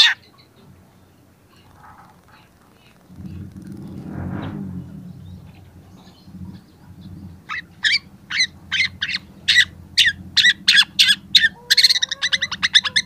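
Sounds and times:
low steady rumble: 0.8 - 13.0.

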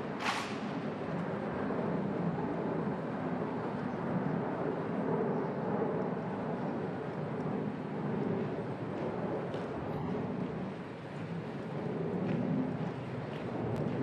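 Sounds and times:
outdoor background rumble: 0.0 - 14.0.

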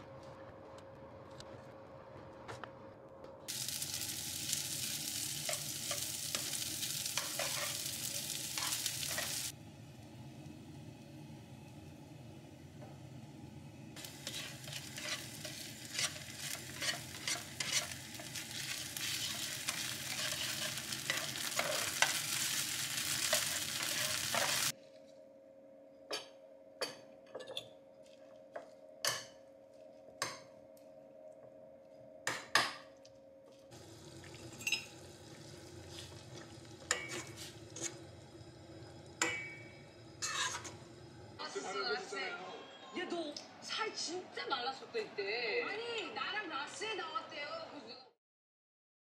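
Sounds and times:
food sizzling in a frying pan: 3.5 - 9.6, 14.0 - 24.8, 33.7 - 41.6.

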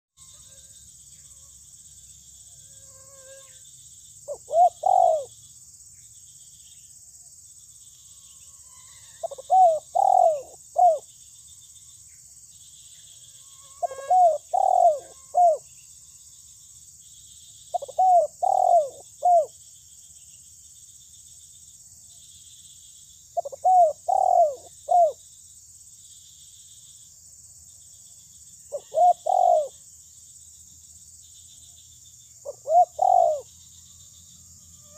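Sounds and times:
dove cooing: 4.3 - 5.3, 9.2 - 11.0, 13.8 - 15.6, 17.7 - 19.5, 23.4 - 25.2, 28.7 - 29.8, 32.5 - 33.5.

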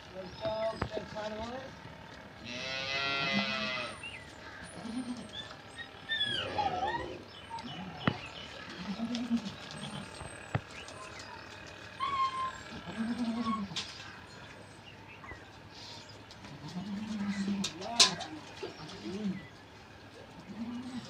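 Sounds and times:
loud drawn-out livestock call: 2.4 - 5.6.

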